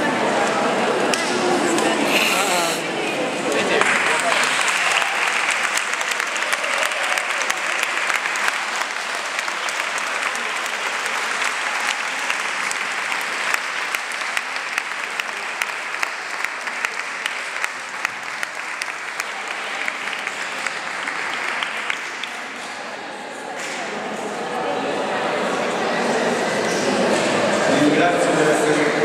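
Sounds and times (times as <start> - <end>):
crowd applauding: 1.8 - 22.8.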